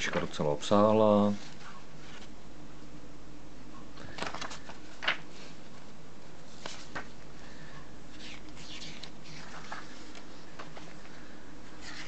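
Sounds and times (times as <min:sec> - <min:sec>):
book pages turning: 0:01.3 - 0:02.4, 0:04.1 - 0:05.8, 0:06.5 - 0:07.2, 0:08.1 - 0:11.2, 0:11.8 - 0:12.0.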